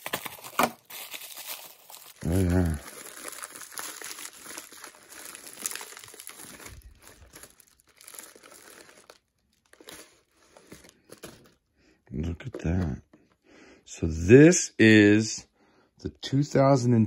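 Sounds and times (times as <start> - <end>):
plastic and bubble wrap crinkling: 0.0 - 12.8.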